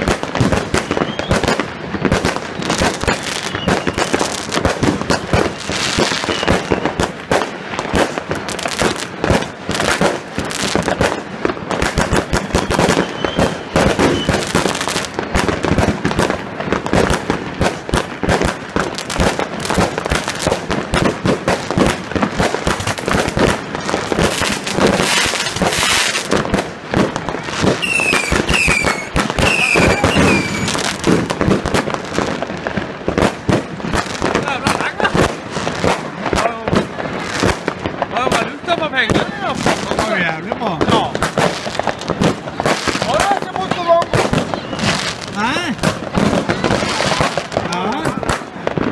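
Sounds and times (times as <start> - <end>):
fireworks bangs and crackling: 0.0 - 48.9.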